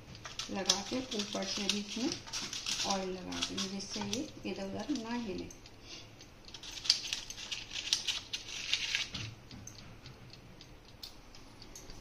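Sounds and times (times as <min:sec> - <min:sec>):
paper liners crinkling: 0:00.2 - 0:05.0, 0:06.5 - 0:09.2.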